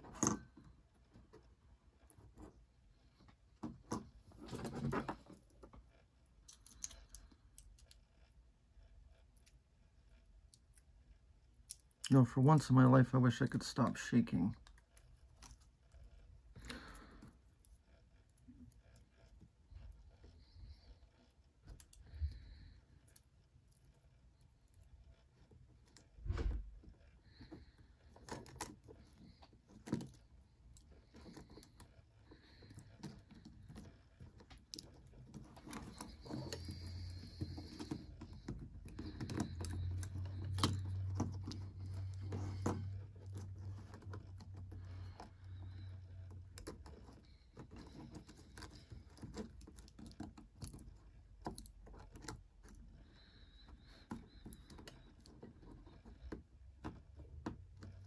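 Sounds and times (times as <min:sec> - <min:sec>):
low steady hum: 0:00.0 - 0:58.0.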